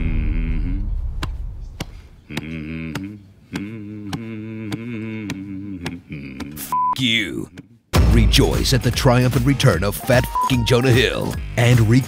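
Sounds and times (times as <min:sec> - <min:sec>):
man humming a chant: 0:00.0 - 0:01.2, 0:02.2 - 0:06.8, 0:10.8 - 0:12.0.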